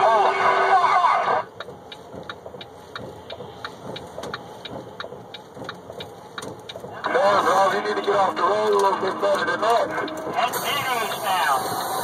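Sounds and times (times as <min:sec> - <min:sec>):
road noise: 0:00.0 - 0:12.0
truck engine: 0:00.0 - 0:12.0
sharp ticks: 0:01.5 - 0:07.2.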